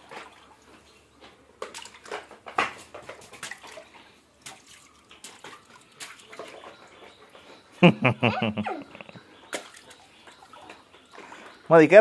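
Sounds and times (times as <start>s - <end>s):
shallow water splashing: 0.0s - 7.4s.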